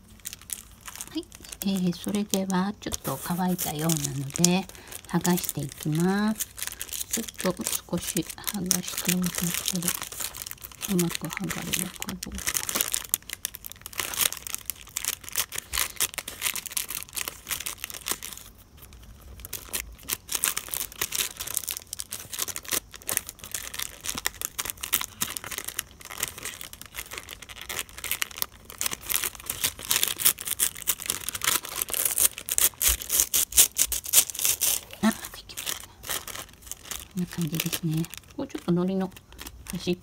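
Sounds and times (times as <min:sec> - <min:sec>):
tissue paper peeling off plastic: 0:00.0 - 0:40.0.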